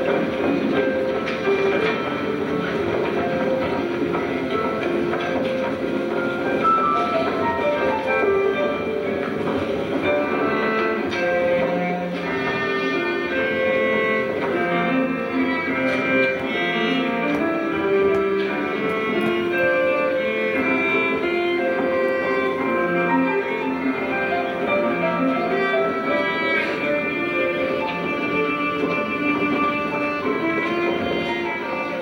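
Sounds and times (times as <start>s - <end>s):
bowed cello melody: 0.0s - 32.0s
small band playing: 0.0s - 32.0s.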